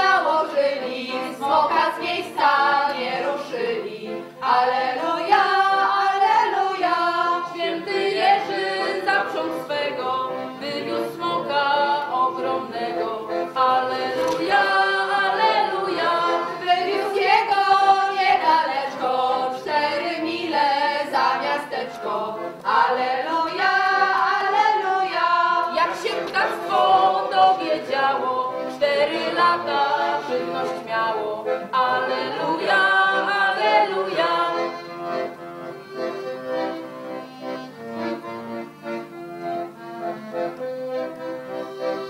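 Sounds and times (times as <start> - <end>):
group singing unaccompanied: 0.0 - 36.0.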